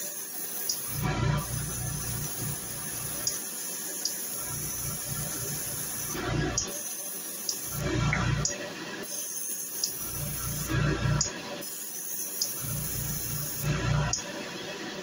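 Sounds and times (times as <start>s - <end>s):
airbrush spraying hiss: 0.0s - 7.8s, 9.0s - 13.9s.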